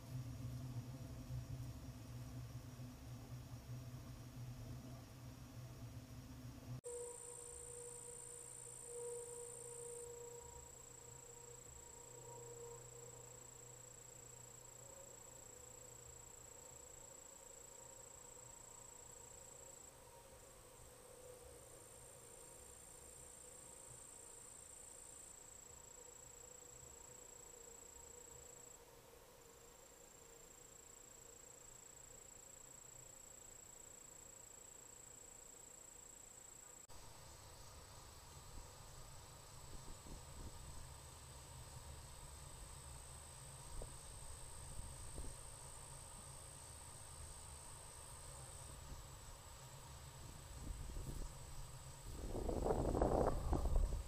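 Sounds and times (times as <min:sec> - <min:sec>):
insects trilling: 0:06.8 - 0:54.0
high-pitched insect trilling: 0:06.9 - 0:20.0.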